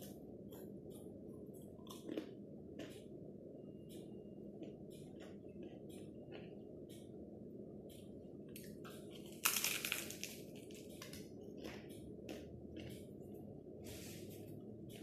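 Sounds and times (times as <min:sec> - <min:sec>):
steady low hum: 0:00.0 - 0:15.0
flatbread crunching: 0:09.2 - 0:11.8.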